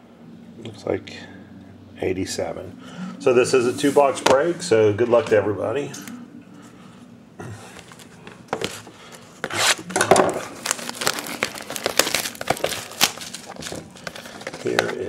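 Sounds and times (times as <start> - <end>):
shrink wrap crinkling: 7.7 - 15.0.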